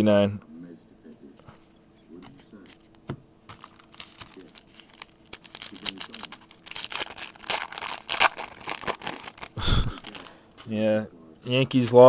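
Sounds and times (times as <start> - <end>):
foil wrapper tearing and crinkling: 3.5 - 10.4.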